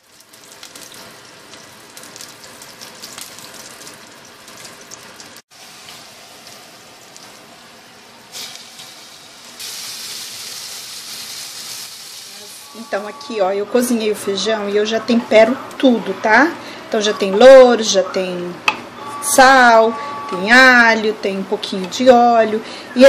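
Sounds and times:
hot oil sizzling in a pot: 0.0s - 12.8s.

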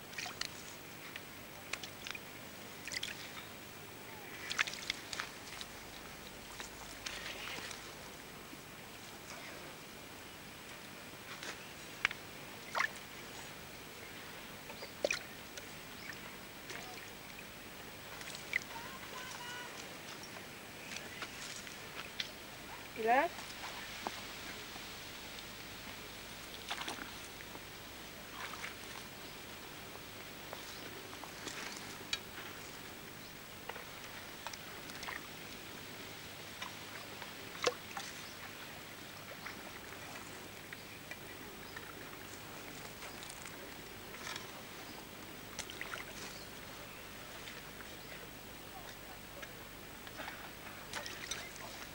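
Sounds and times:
water splashes and wet slaps: 0.0s - 0.6s, 2.8s - 3.3s, 4.3s - 5.7s, 11.4s - 13.0s, 15.0s - 17.0s, 26.5s - 27.3s, 28.3s - 29.1s, 33.6s - 35.3s, 36.5s - 38.6s, 45.5s - 46.4s, 48.8s - 51.9s.

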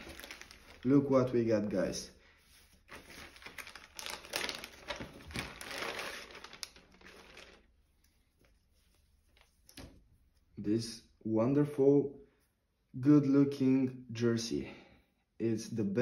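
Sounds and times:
plastic bag crinkling: 0.0s - 1.3s, 2.9s - 7.8s.

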